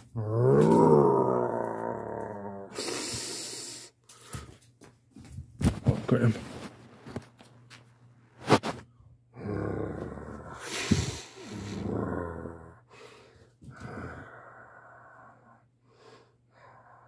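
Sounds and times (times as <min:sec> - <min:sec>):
person growling and breathing hard: 0:00.0 - 0:04.0, 0:09.3 - 0:17.0.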